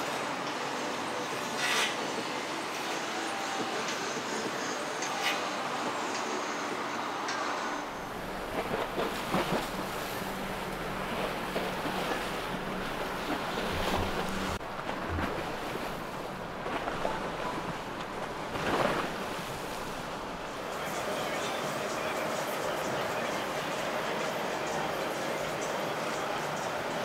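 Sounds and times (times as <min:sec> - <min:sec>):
boat engine hum: 0:00.0 - 0:27.0
water lapping: 0:00.0 - 0:27.0.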